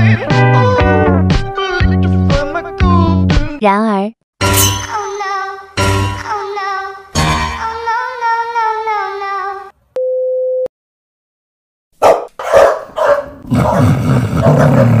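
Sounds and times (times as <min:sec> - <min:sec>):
music: 0:00.0 - 0:03.6, 0:04.4 - 0:08.0
dog barking: 0:12.0 - 0:15.0.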